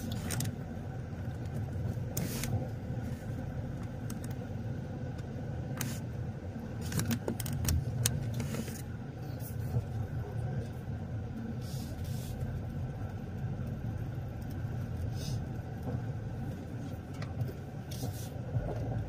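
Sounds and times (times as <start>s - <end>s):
car engine and road rumble: 0.0s - 19.0s.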